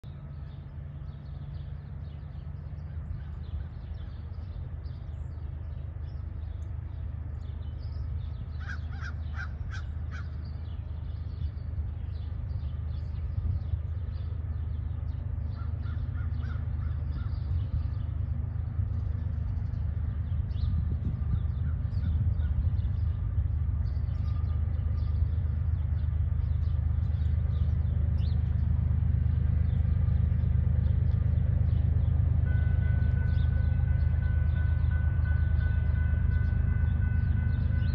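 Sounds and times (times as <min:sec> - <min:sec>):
diesel locomotive rumble: 0:00.0 - 0:37.9
bird calling: 0:08.6 - 0:10.6, 0:15.6 - 0:17.6.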